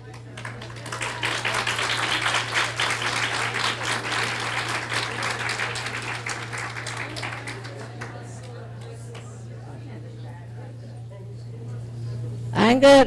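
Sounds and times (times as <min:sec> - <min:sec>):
audience applauding: 0:00.0 - 0:10.0
low electrical hum: 0:00.0 - 0:13.0.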